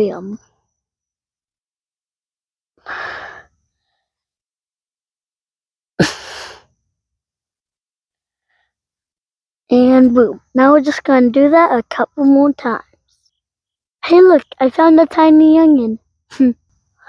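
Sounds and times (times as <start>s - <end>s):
sharp burst of breath: 2.8s - 3.5s, 6.0s - 6.7s.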